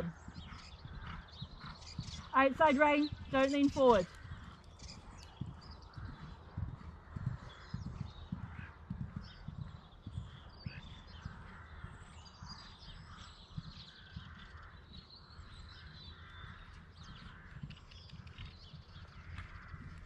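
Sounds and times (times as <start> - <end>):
crows cawing: 15.8 - 17.6.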